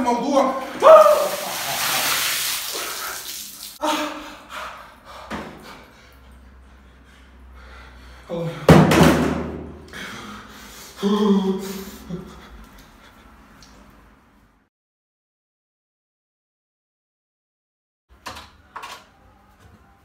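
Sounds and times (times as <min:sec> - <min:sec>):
water splashing onto tiled floor: 0:01.1 - 0:03.8.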